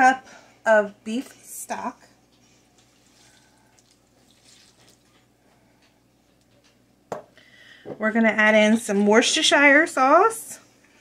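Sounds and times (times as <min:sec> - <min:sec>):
faint splashing and dripping: 0:02.4 - 0:06.0
liquid pouring into a pot: 0:02.8 - 0:05.3.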